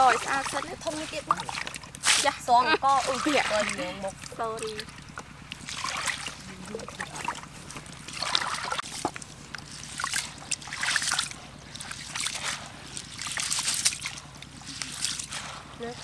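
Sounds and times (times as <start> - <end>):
hands washing rice in water: 0.0 - 16.0
water splashing and sloshing: 0.0 - 16.0.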